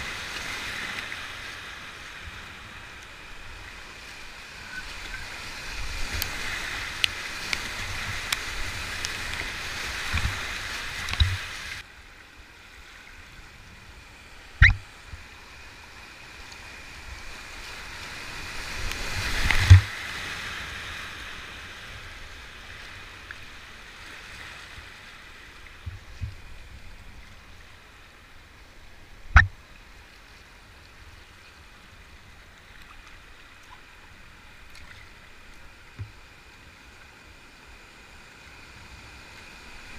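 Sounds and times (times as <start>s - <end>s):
kayak thumps: 19.5s - 19.9s, 29.3s - 29.5s.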